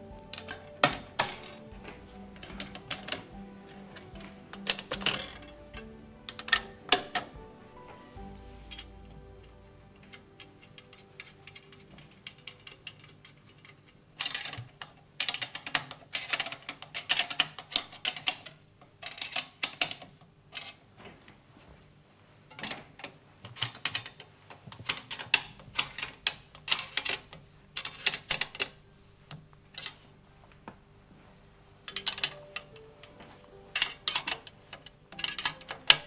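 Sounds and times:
hand tools clicking on metal: 0:00.0 - 0:07.4, 0:31.9 - 0:36.0.

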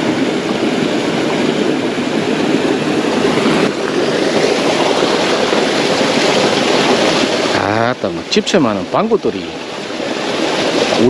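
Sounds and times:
stream rushing over rocks: 0:00.0 - 0:11.0.

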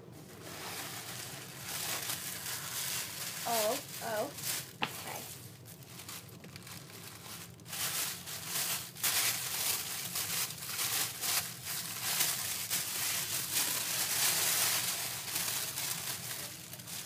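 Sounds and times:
tissue paper rustling: 0:00.1 - 0:17.0.

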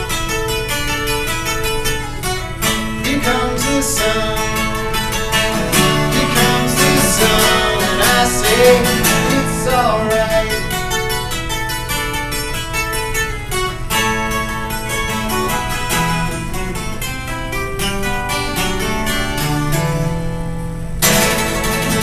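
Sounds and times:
acoustic guitar strumming: 0:00.0 - 0:22.0
man singing: 0:02.9 - 0:11.2.

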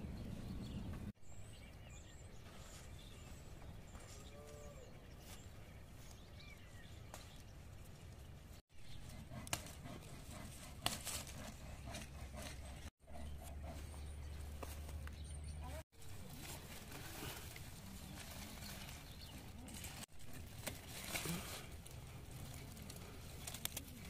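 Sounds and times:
leaves rustling and snapping: 0:16.0 - 0:24.0.

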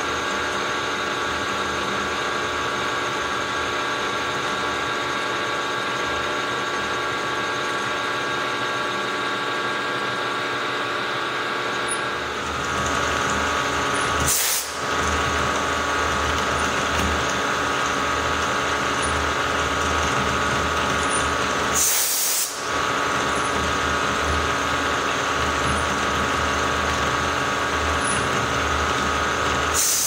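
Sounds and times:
milling machine whine: 0:00.0 - 0:30.0.

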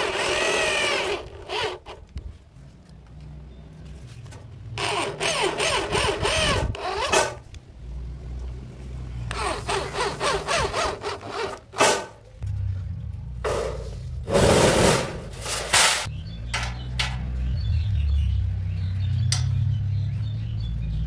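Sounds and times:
electric drill driving screws: 0:00.0 - 0:02.0, 0:04.8 - 0:07.4, 0:09.3 - 0:11.6.

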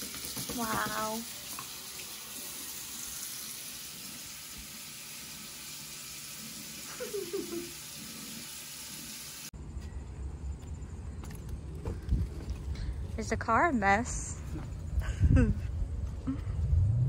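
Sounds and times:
low rumble: 0:10.2 - 0:17.0.

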